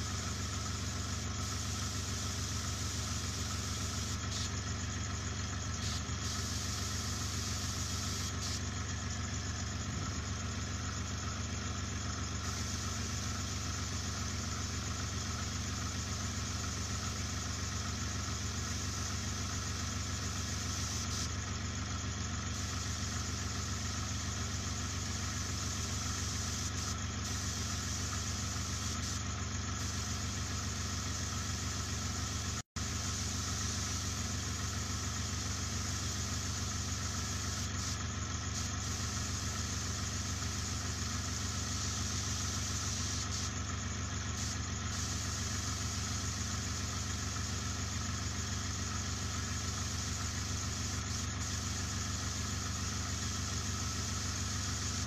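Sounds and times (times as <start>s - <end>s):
air hissing: 0.0s - 4.6s, 5.8s - 8.7s, 18.6s - 21.3s, 22.5s - 29.2s, 35.3s - 43.5s, 44.4s - 46.4s
air compressor humming: 0.0s - 55.0s.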